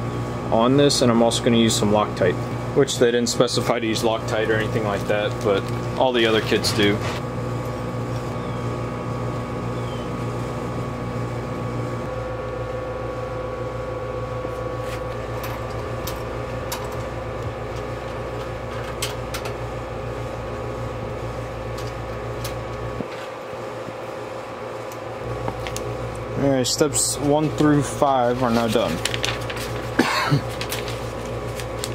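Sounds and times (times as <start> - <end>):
mechanical hum: 0.0 - 31.9.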